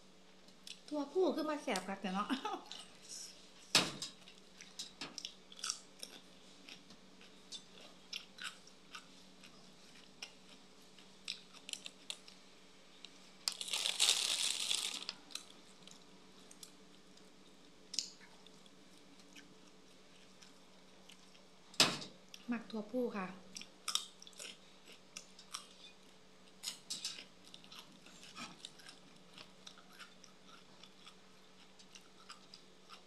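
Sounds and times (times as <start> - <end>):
person chewing crunchy food: 4.2 - 12.4, 13.5 - 21.5, 23.5 - 33.0.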